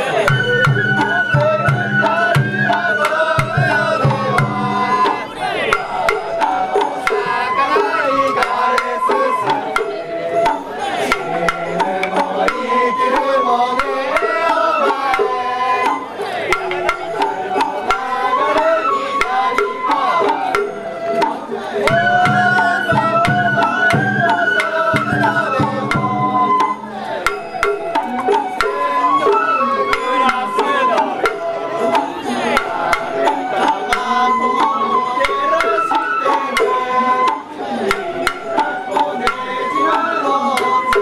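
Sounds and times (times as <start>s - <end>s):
bamboo flute melody: 0.0s - 41.0s
drum strikes: 0.0s - 41.0s.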